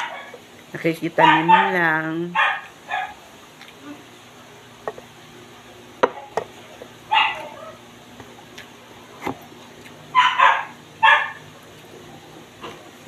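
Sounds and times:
dog barking: 0:01.2 - 0:03.2, 0:07.1 - 0:07.8, 0:10.1 - 0:11.4.

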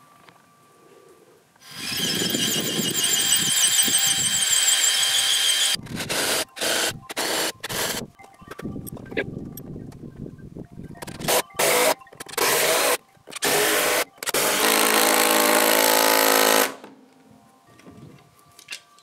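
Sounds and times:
cordless drill boring into wood: 0:01.6 - 0:08.0, 0:11.6 - 0:16.8.

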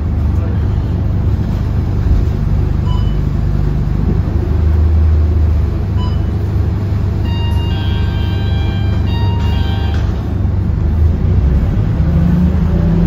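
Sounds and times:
bus diesel engine rumbling: 0:00.0 - 0:13.0
short electronic beeps: 0:02.8 - 0:03.3, 0:06.0 - 0:06.4, 0:07.2 - 0:10.2.

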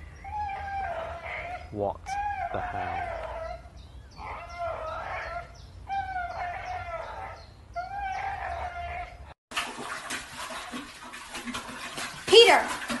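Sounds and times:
dog making drawn-out calls: 0:00.3 - 0:09.3
dog lapping water: 0:09.5 - 0:13.0.

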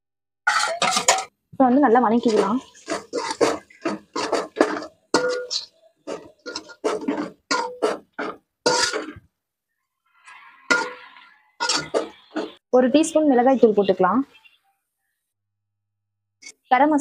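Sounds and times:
ladle scraping a metal pan: 0:00.5 - 0:01.3, 0:02.1 - 0:09.3, 0:10.1 - 0:12.6.

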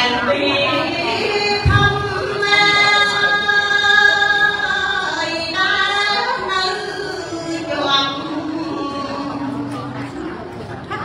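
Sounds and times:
woman chanting unaccompanied: 0:00.0 - 0:10.2.

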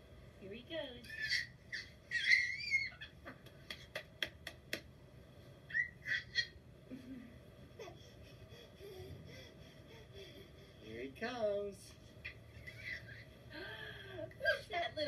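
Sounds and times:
baby squealing: 0:01.0 - 0:03.2, 0:05.7 - 0:06.6.

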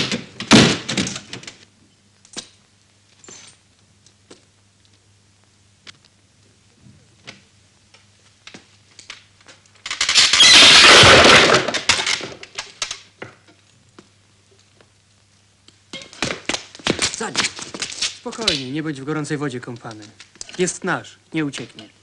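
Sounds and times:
loud crash of something breaking: 0:00.0 - 0:01.2, 0:10.0 - 0:12.4.

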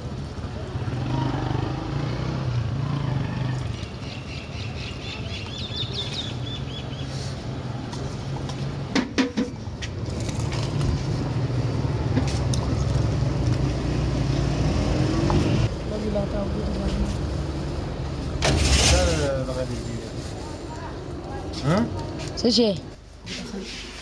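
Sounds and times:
low engine hum: 0:06.3 - 0:18.4.

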